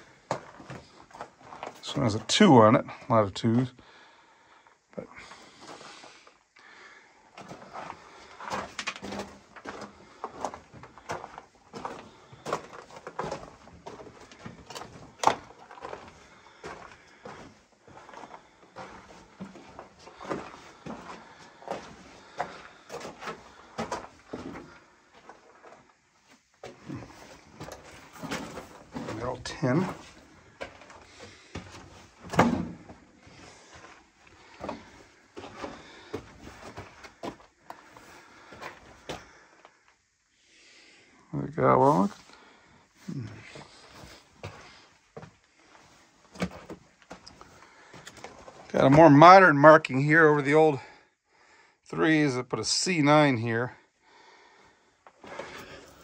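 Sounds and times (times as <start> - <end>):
footsteps crunching on gravel: 7.4 - 25.9, 26.6 - 39.3.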